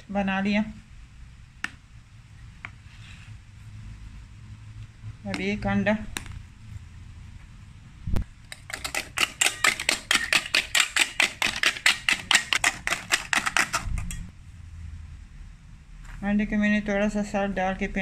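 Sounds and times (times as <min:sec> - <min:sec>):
whisk clattering in metal bowl: 0:08.5 - 0:14.3.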